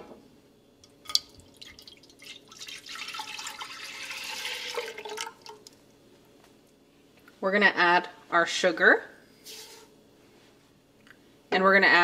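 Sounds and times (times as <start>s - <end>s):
milk pouring into a pot: 1.0s - 5.8s.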